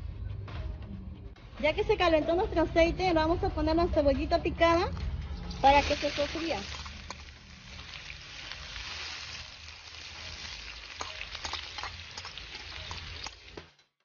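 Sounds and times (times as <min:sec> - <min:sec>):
onion sizzling in hot oil: 0:05.5 - 0:14.0.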